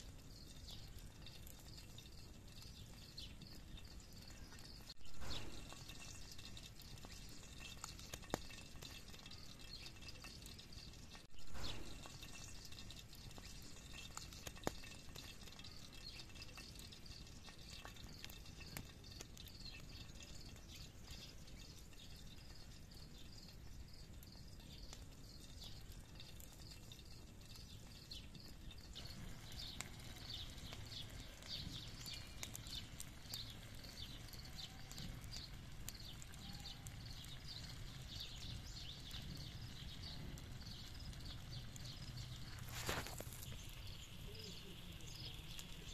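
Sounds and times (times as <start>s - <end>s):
campfire crackling and popping: 0.0s - 45.9s
faint steady hiss: 0.0s - 45.9s
faint high chirping: 17.9s - 45.9s.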